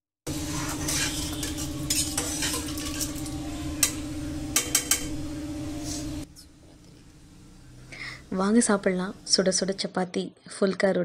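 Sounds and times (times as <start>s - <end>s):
ladle scraping metal pot: 0.3s - 4.0s
steady hum: 0.3s - 10.0s.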